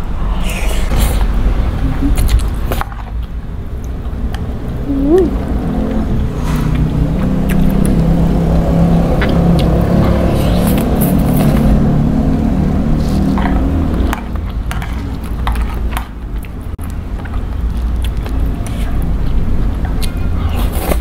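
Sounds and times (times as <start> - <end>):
loud low rumble: 0.0 - 15.7
slurping noodles: 10.0 - 11.7.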